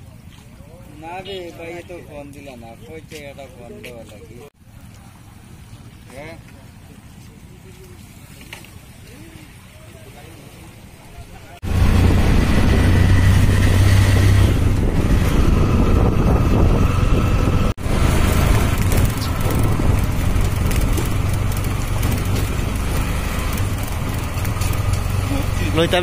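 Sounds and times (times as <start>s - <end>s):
auto-rickshaw engine running: 11.6s - 26.0s.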